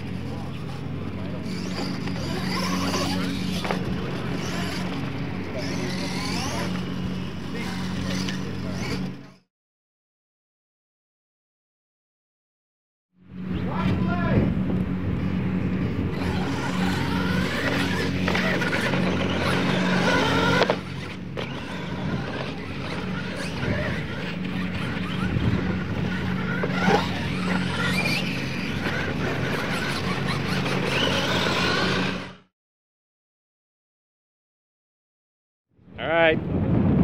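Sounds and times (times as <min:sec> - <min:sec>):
steady low hum: 0:00.0 - 0:09.4, 0:13.2 - 0:32.4
toy truck motors whining: 0:00.0 - 0:09.5, 0:15.8 - 0:32.5.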